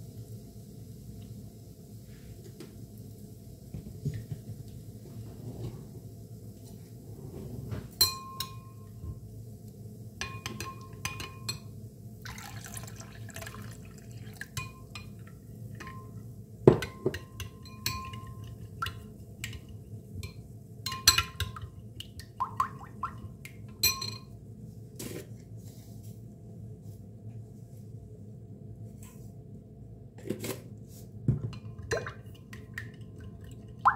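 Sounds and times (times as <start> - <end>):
spoon clinking against glass bowl: 8.0 - 8.8, 10.2 - 11.7, 16.8 - 18.6, 19.4 - 21.6, 23.8 - 24.3
liquid pouring into bowl: 12.2 - 15.3.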